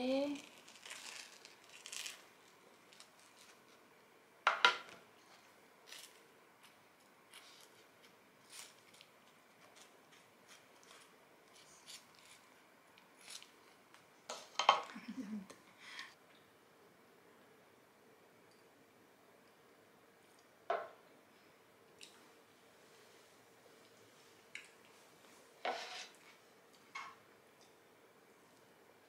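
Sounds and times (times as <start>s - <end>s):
knife scraping on toast: 25.6s - 26.2s.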